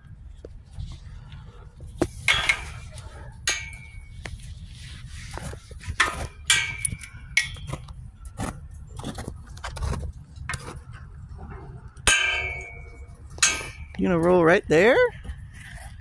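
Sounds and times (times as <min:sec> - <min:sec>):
metal gate clanging: 0:02.3 - 0:04.1, 0:11.4 - 0:14.2.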